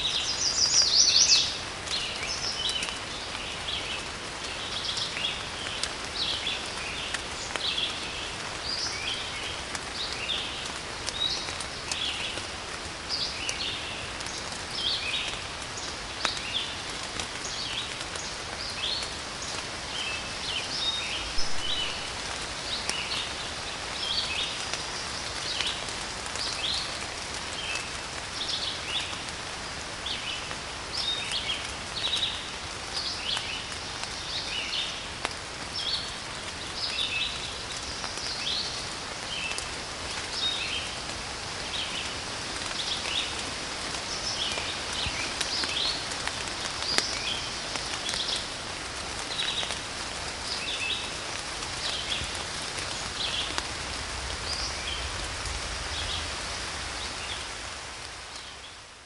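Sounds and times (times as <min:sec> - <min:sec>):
songbirds chirping: 0:00.0 - 0:59.0
steady rain falling: 0:00.0 - 0:59.0.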